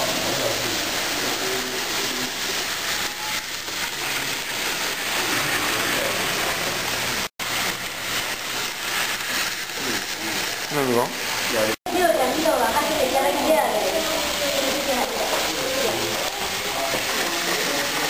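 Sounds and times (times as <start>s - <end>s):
faint voices: 0.0s - 7.2s, 11.9s - 18.0s
busy room hiss: 0.0s - 18.0s.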